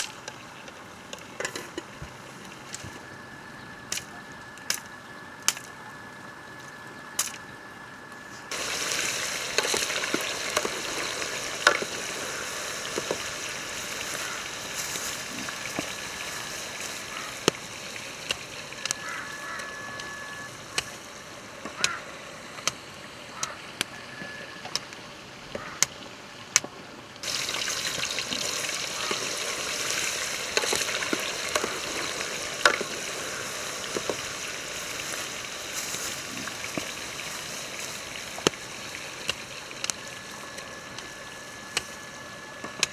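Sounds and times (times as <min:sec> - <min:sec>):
fire crackling: 0:03.8 - 0:24.0, 0:26.5 - 0:42.9
dry branches snapping: 0:07.2 - 0:07.4
chicken sizzling in oil: 0:08.5 - 0:22.1, 0:27.2 - 0:42.9.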